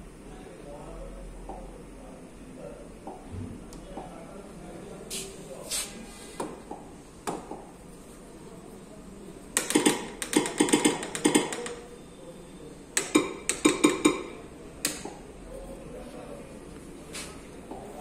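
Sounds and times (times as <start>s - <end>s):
stylus tapping on glass touchscreen: 9.5s - 11.8s, 13.0s - 15.2s.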